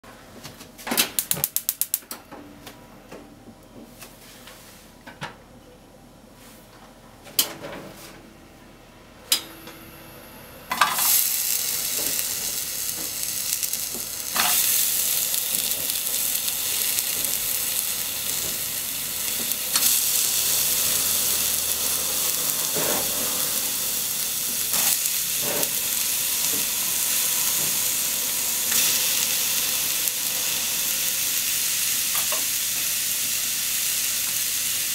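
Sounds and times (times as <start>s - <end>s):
onions sizzling in oil: 10.7s - 34.9s.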